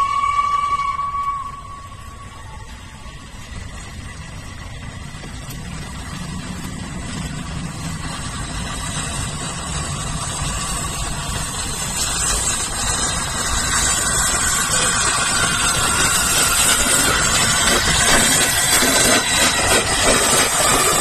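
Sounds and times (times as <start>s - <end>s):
steam locomotive rumble and hiss: 0.0s - 21.0s.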